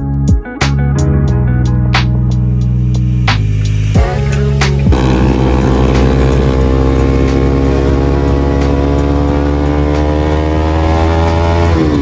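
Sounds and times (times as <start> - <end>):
motorcycle engine accelerating: 2.4 - 12.0.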